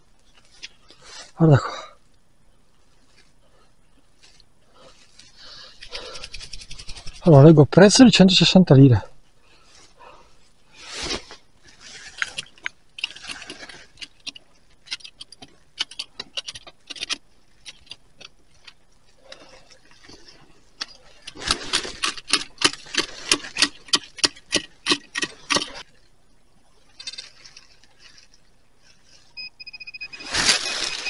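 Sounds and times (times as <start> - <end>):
dry leaves crackling: 10.7 - 14.9, 17.3 - 25.9, 26.8 - 29.3, 30.1 - 31.0
soil being scraped: 10.7 - 25.8.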